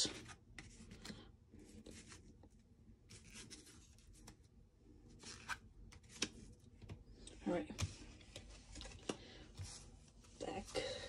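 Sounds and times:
cards brushing and tapping: 5.2 - 7.1, 7.7 - 9.9.

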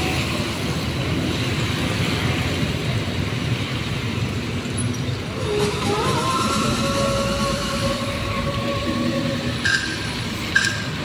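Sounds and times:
vehicle engines: 0.0 - 11.0.

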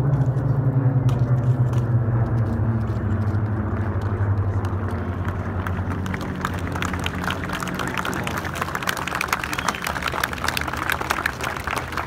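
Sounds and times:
propeller aircraft engines droning: 0.0 - 12.0.

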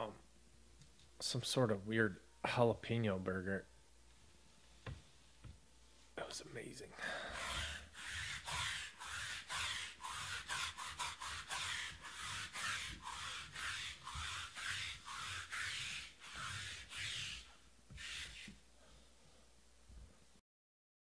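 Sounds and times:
lint roller rubbing on table: 7.4 - 18.6.

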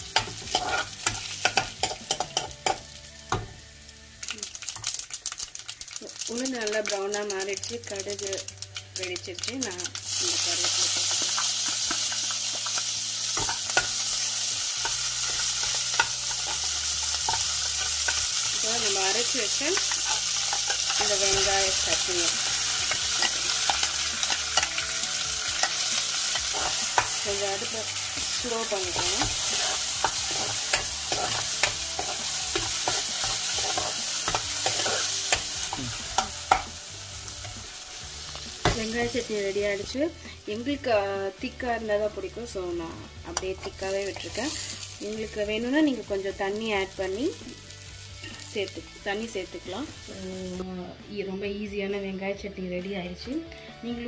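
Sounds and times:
leaves sizzling in hot oil: 0.0 - 50.6
metal spoon scraping pan: 0.2 - 2.8, 19.5 - 36.7.

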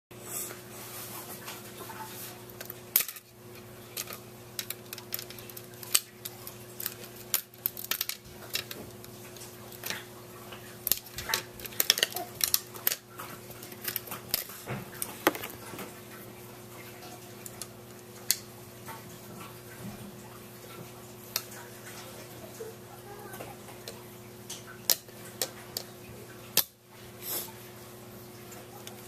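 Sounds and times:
plastic pieces clicking and clattering: 4.0 - 10.1, 10.8 - 13.0, 13.6 - 15.6.

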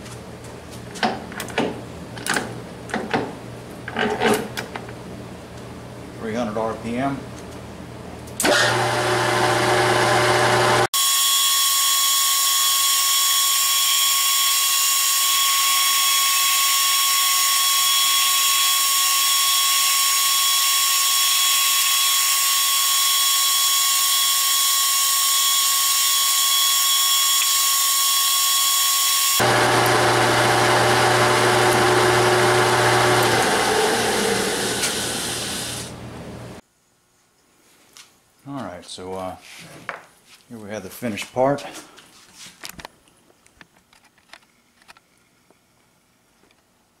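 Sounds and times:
metal lathe running: 8.5 - 10.9, 28.6 - 35.9.

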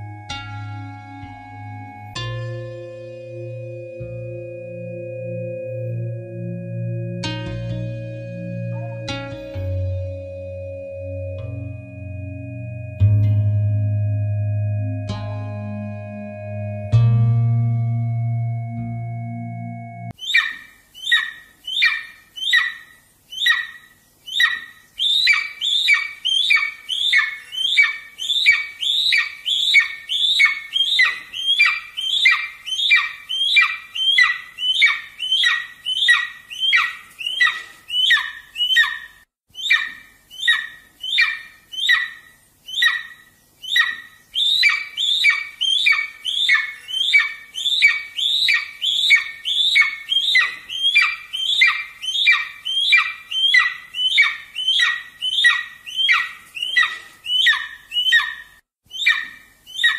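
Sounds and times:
eagle chick squawking: 20.2 - 59.9.

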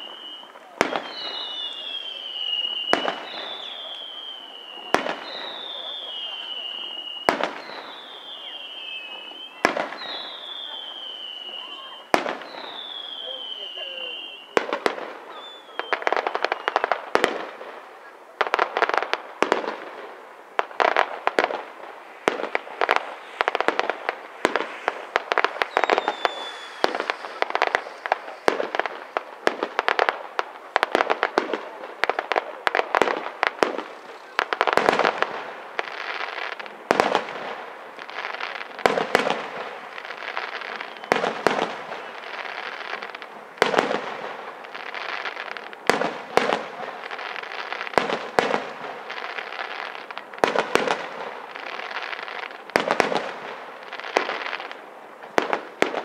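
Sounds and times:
firework crackling: 0.0 - 56.0
firework shells bursting: 18.4 - 53.4.

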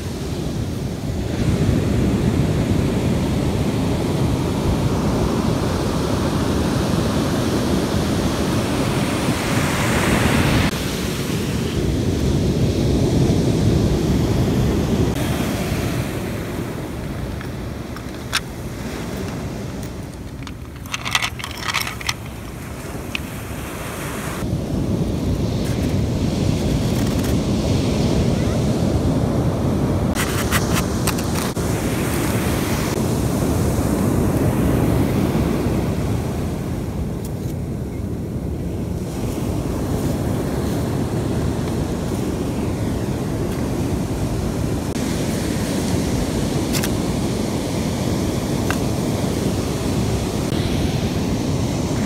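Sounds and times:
wind rushing over microphone: 0.0 - 52.0
plastic toys clicking: 20.1 - 22.5.

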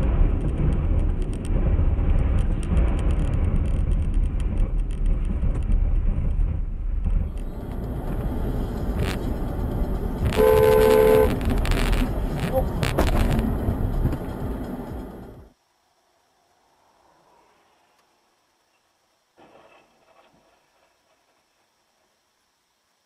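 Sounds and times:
car road and engine rumble: 0.0 - 15.7
vehicle horn: 10.2 - 12.8.

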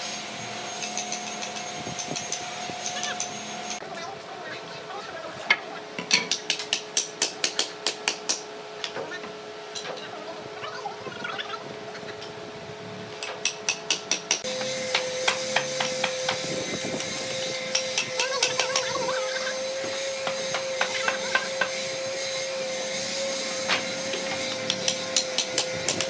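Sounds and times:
machine hum with hiss: 0.0 - 3.8, 11.9 - 26.0.

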